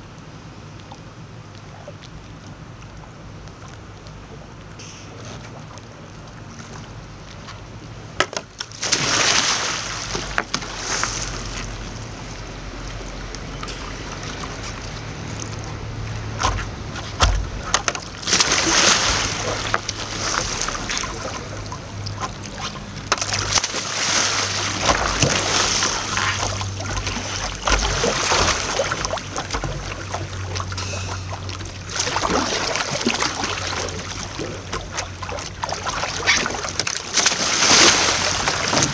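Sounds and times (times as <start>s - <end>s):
water splashing and sloshing: 0.0s - 38.9s
paddle sweeping through water: 8.8s - 12.4s, 13.7s - 38.9s.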